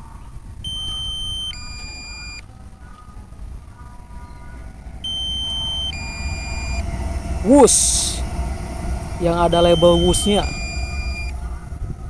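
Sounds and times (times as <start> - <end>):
two-tone electronic alert: 0.7 - 2.4, 4.8 - 11.4.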